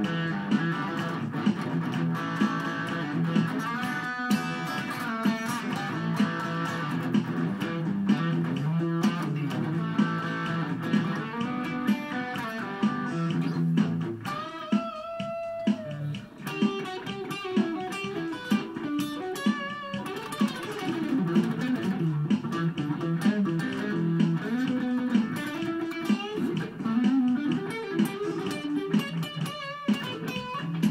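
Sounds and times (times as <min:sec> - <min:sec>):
electric guitar music: 0:00.0 - 0:30.9
steady beat: 0:00.0 - 0:30.9
bass line: 0:05.6 - 0:14.4.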